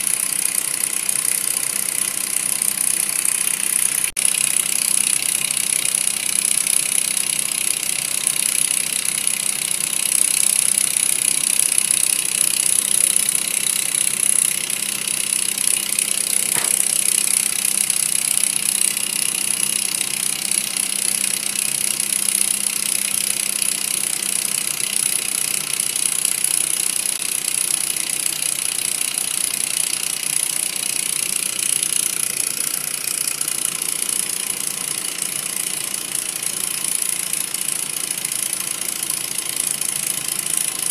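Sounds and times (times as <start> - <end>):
sharp click: 3.6 - 23.4.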